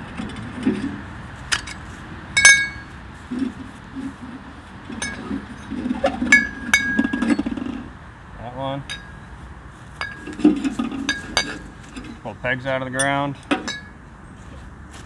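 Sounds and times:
pipe scraping against pipe: 0.0s - 7.9s, 10.0s - 12.2s.

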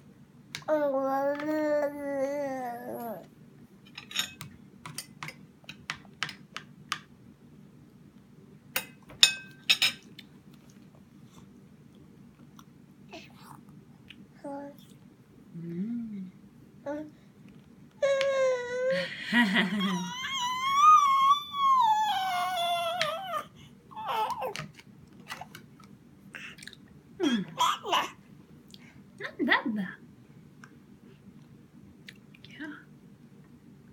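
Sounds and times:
baby babbling: 0.7s - 3.3s, 16.8s - 17.1s, 18.0s - 19.1s, 19.8s - 24.6s, 27.4s - 28.2s
baby cooing: 0.7s - 3.3s, 18.0s - 19.1s, 19.8s - 24.6s, 27.2s - 28.2s
baby squealing: 19.9s - 24.6s.

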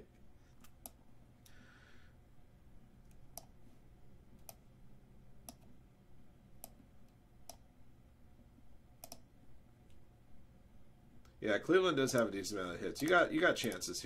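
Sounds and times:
computer mouse clicks: 0.5s - 1.6s, 3.0s - 3.6s, 4.4s - 4.7s, 5.4s - 5.7s, 6.6s - 7.7s, 9.0s - 9.3s, 13.0s - 13.8s.

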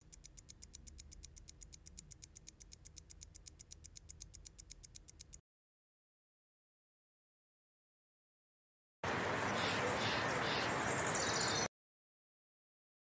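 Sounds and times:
clock ticking rapidly: 0.0s - 5.4s.

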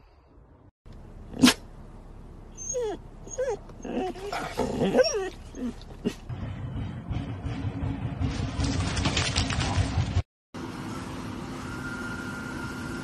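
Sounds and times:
dogs whining and yowling: 2.6s - 6.2s.

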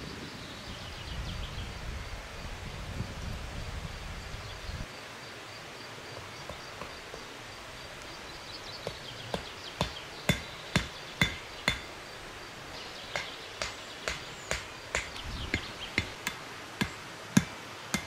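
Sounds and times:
hatchet striking wood: 8.9s - 11.9s, 13.1s - 18.0s.

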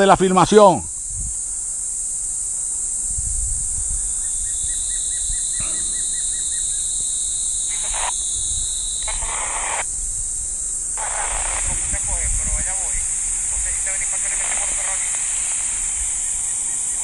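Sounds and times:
insects chirping: 0.0s - 17.0s
short bursts of hiss: 6.8s - 17.0s
quick repeated chirps: 7.7s - 8.2s, 11.0s - 17.0s.

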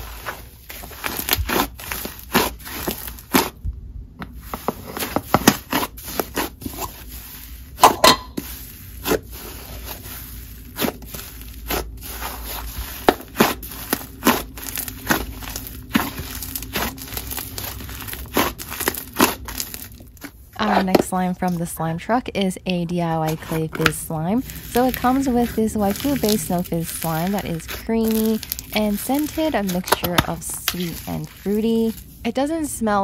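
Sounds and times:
slime squished by hand: 0.2s - 3.6s, 4.4s - 7.8s, 8.4s - 20.4s, 23.4s - 32.2s
crackling pops of slime: 27.7s - 30.4s.

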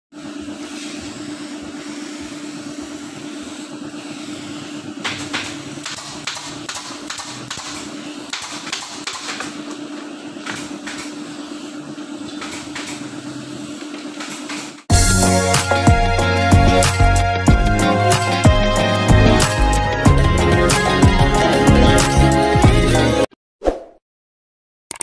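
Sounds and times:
spray gun hissing: 0.1s - 19.9s.

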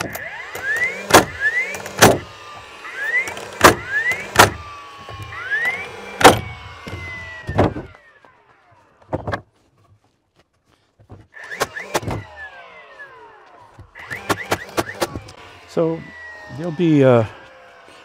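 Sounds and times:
nail gun shots: 0.0s - 2.3s, 3.2s - 4.6s, 5.6s - 7.9s, 11.4s - 12.3s, 14.0s - 15.4s
rising electric whine: 0.0s - 9.0s.

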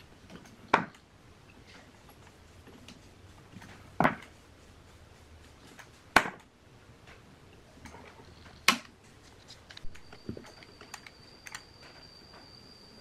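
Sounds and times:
sharp knocks on metal: 6.2s - 6.4s.

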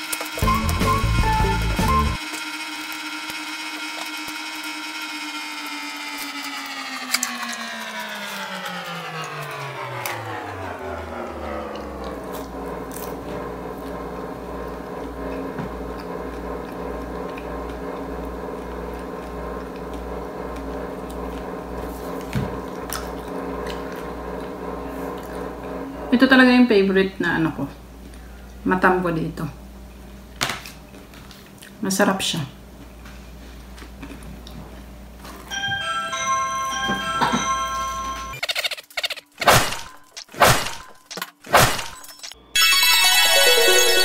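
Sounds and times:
machine hum: 0.0s - 31.5s
low even throb: 7.7s - 26.7s.

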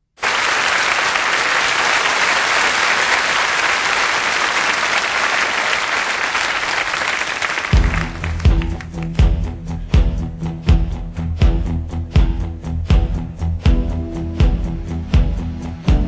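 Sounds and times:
audience applauding: 0.2s - 9.2s
music with strong bass: 7.8s - 16.0s.

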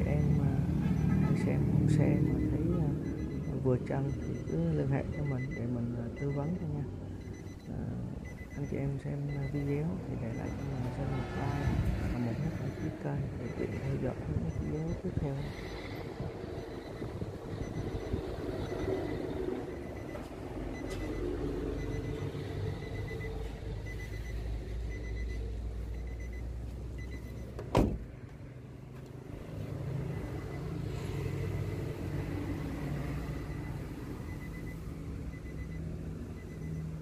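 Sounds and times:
low vehicle rumble: 0.0s - 37.0s
car door thump: 27.6s - 28.1s.

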